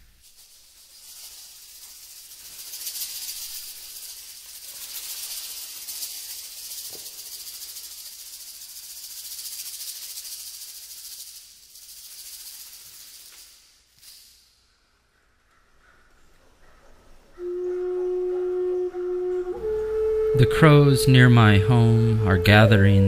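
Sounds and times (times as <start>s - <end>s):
hand-shaken percussion rattle: 0.0s - 14.8s.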